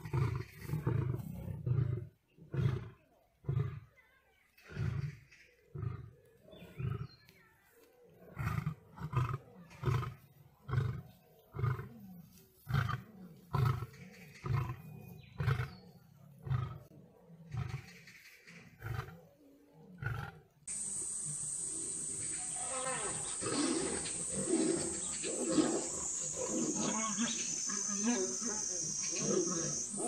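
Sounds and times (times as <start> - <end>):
lion roaring: 8.3 - 17.9, 19.9 - 30.0.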